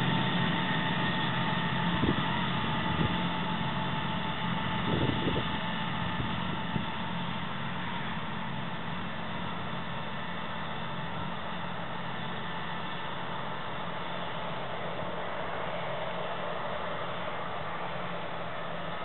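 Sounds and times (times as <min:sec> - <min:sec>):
rushing noise of crop: 0:00.0 - 0:19.0
tractor diesel engine running: 0:00.0 - 0:19.0.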